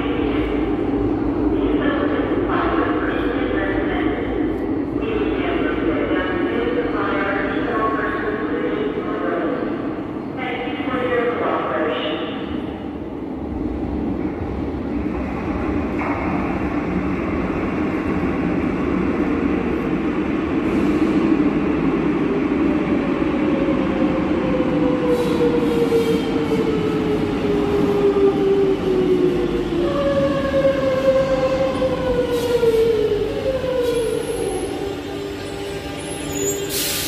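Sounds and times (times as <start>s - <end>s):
train wheels rumbling on rails: 12.4s - 37.0s
train brakes whining: 35.4s - 37.0s.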